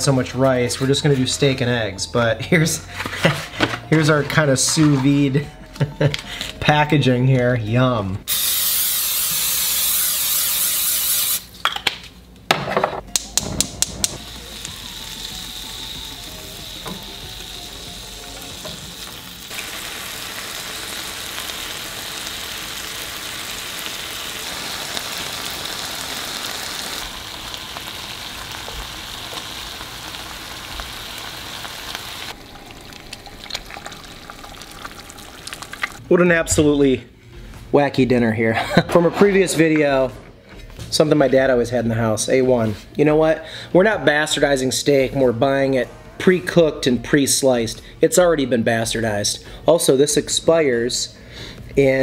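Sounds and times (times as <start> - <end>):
aerosol spray hissing: 8.3 - 11.4
meat sizzling in a frying pan: 14.2 - 36.0.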